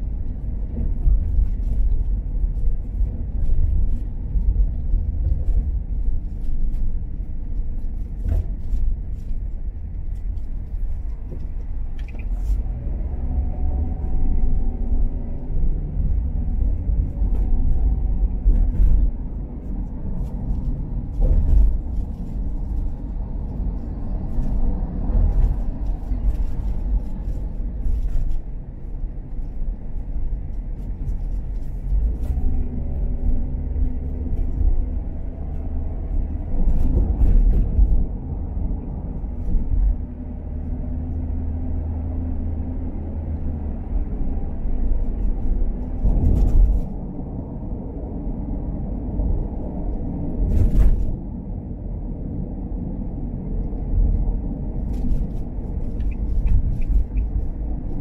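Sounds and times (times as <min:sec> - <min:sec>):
car engine and road noise: 0:00.0 - 0:58.0
engine hum: 0:00.0 - 0:58.0.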